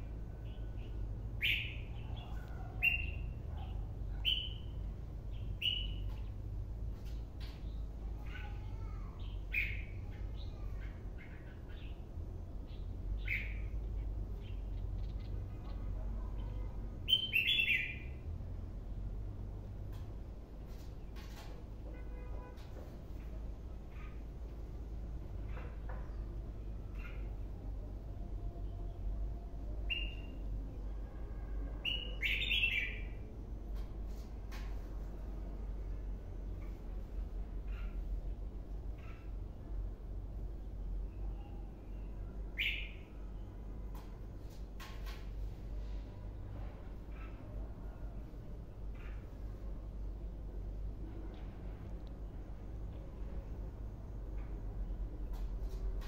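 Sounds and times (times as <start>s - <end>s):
low background hum: 0.0s - 56.0s
bird singing whistled notes: 17.1s - 18.1s.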